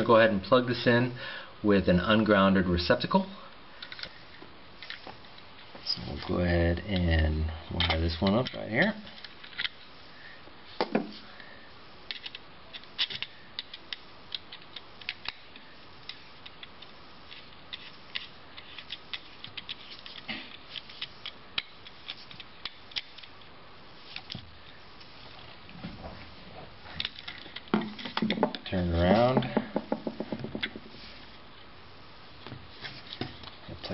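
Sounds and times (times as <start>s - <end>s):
handling wires and receptacle: 3.8s - 10.0s, 12.0s - 33.9s
screwdriver clicking and scraping: 6.2s - 9.9s, 12.1s - 23.5s, 24.1s - 25.1s, 26.9s - 29.4s.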